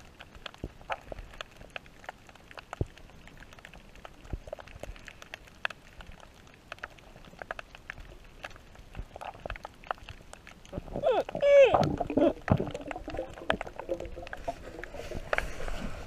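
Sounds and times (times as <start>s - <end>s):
faint steady hiss: 0.0s - 16.0s
underwater clicks and pops: 6.7s - 15.5s.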